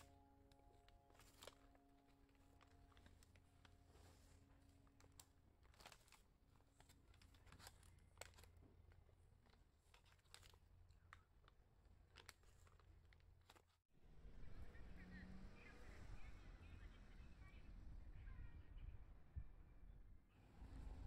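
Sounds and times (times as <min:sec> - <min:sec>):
low steady hum: 0:00.0 - 0:13.5
paper bag crinkling: 0:00.0 - 0:13.8.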